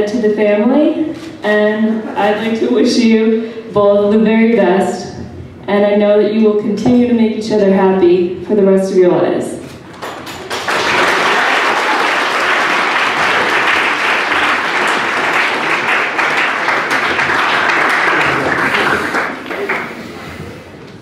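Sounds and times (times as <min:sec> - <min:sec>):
room of people applauding: 0:09.9 - 0:20.6.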